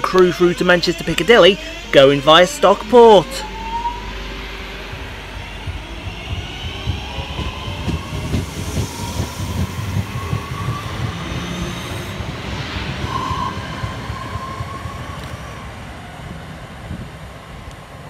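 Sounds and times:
train traction motors whining: 0.0s - 18.0s
wheels knocking on track: 5.7s - 11.4s.

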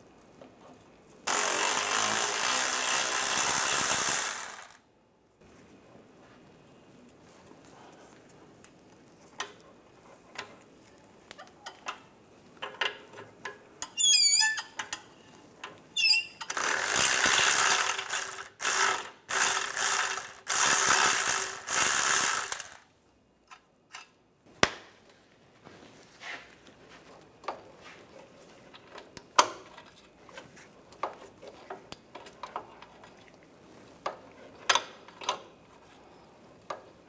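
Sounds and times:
cordless ratchet running: 1.3s - 4.8s, 16.4s - 22.8s
metal on metal squeaks: 13.9s - 14.8s, 16.0s - 16.5s
ratchet clicks: 16.4s - 22.8s.

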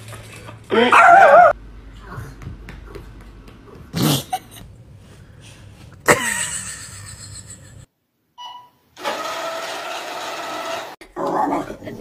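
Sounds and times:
small dog barking: 0.8s - 1.5s.

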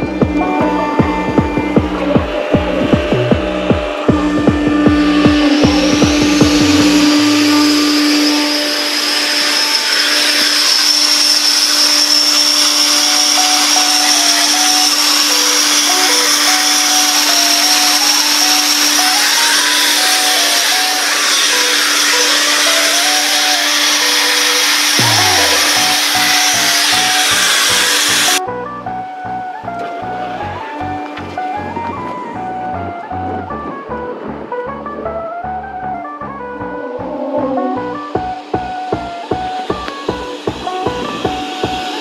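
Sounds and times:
air compressor hissing and humming: 0.0s - 28.4s, 37.8s - 42.0s
low throbbing: 0.0s - 42.0s.

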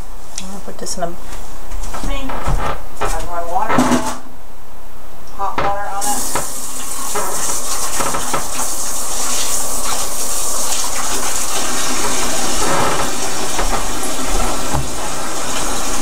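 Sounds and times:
water running from tap: 5.9s - 16.0s.

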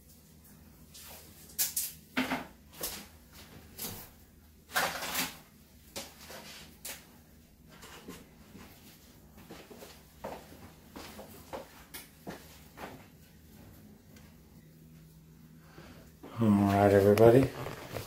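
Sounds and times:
rustling: 16.7s - 18.0s.

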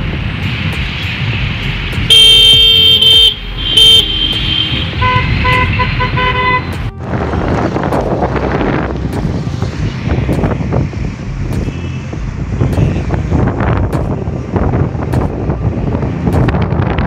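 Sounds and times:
wind noise on microphone: 0.0s - 17.0s
vehicle horn honking: 2.1s - 7.5s.

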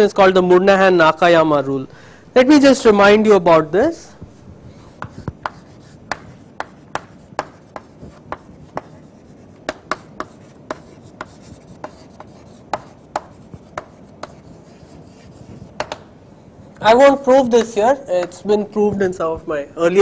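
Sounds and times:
chalk tapping on chalkboard: 4.2s - 16.1s, 17.5s - 18.4s.

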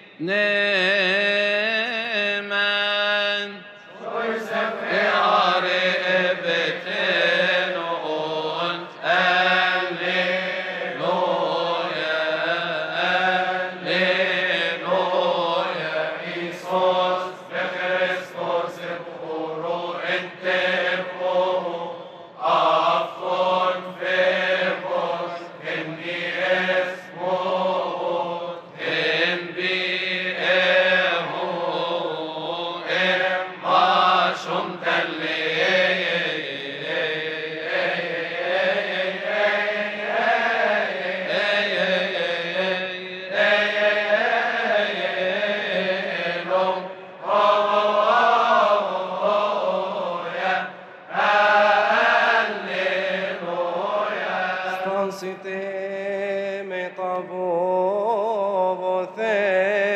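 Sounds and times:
choir chanting a hymn: 0.0s - 59.9s.

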